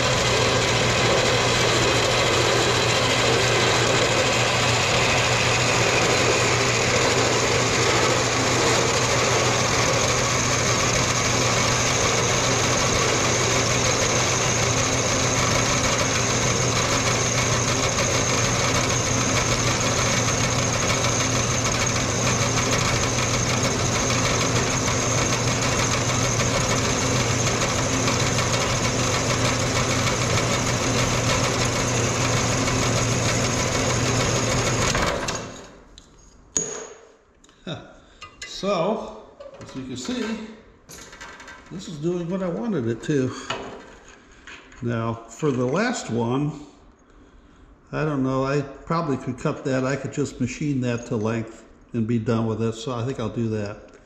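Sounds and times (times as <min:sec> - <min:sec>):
bandsaw cutting metal bar: 0:00.0 - 0:35.8.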